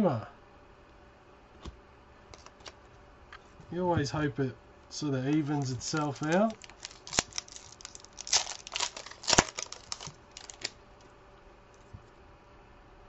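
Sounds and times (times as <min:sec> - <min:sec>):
wrapper tearing and crinkling: 0:05.3 - 0:11.1.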